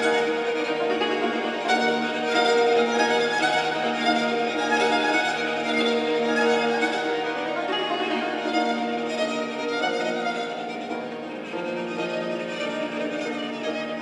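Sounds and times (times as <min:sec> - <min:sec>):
kamancheh bowed long notes: 0:00.0 - 0:14.0.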